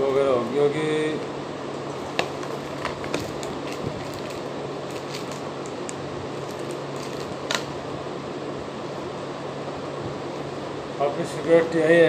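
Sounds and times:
fan hum: 0.0s - 12.0s
plastic packaging crinkling: 2.0s - 7.7s.

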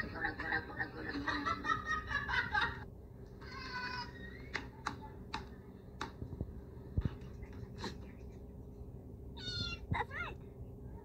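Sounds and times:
cat meowing: 9.4s - 9.9s.

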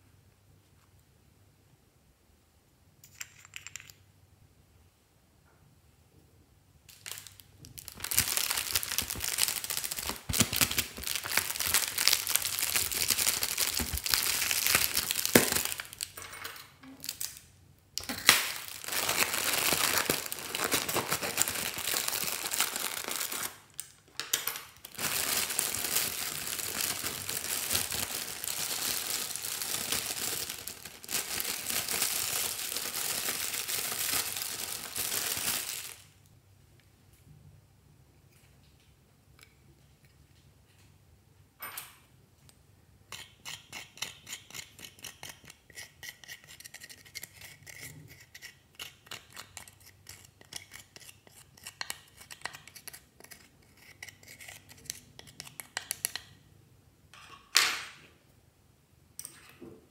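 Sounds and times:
foil balloon crinkling: 7.1s - 16.1s, 18.1s - 23.7s, 24.8s - 36.0s.

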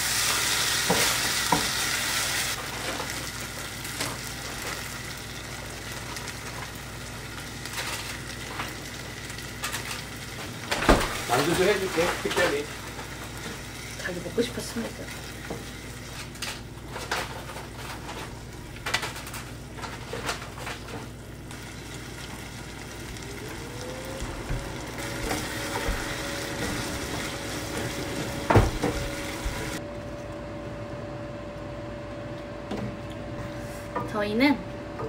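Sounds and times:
food sizzling in a pot: 0.0s - 16.4s, 21.2s - 29.8s
steady hum: 17.8s - 35.0s.

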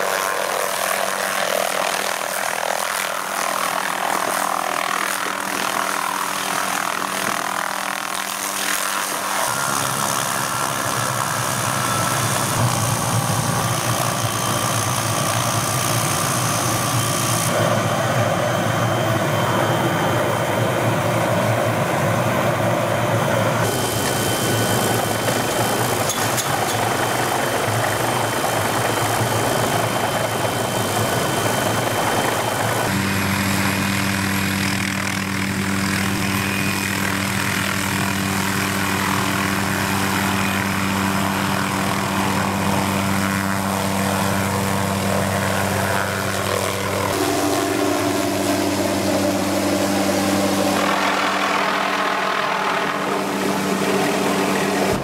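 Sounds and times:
tree saw rig rushing whine: 0.0s - 55.0s.

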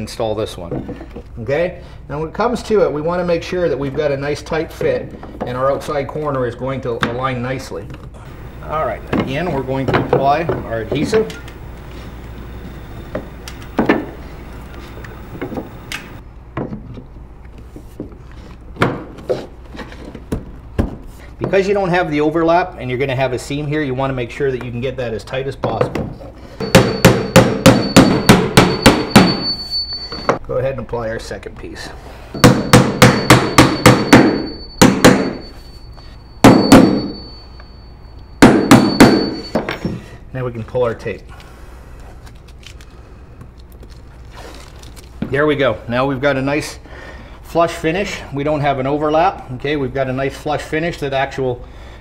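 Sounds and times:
wooden knocks and rubbing: 8.3s - 17.0s
hammer driving nails into wood: 26.7s - 29.4s, 32.4s - 35.4s.

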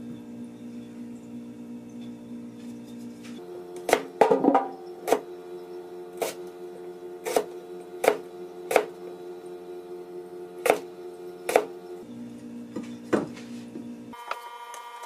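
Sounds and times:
knife chopping on wooden board: 7.2s - 8.9s, 10.6s - 10.8s, 11.5s - 11.7s.

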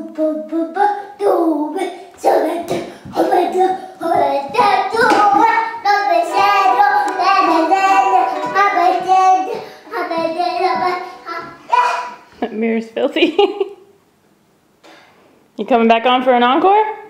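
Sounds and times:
young child singing loudly: 2.4s - 12.3s.

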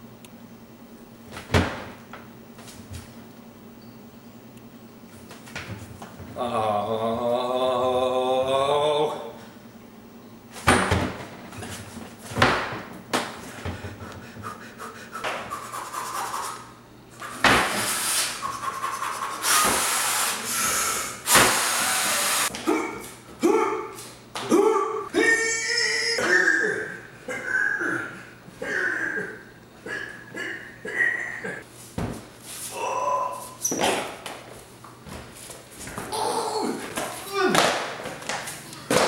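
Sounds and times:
man grunting and breathing heavily: 22.6s - 25.3s
man groaning with effort: 22.7s - 29.4s, 32.7s - 33.4s, 36.1s - 37.6s.

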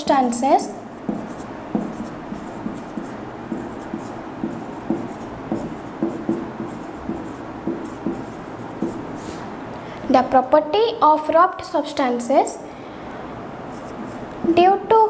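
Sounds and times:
marker pen writing on whiteboard: 0.1s - 9.4s, 13.7s - 14.7s.

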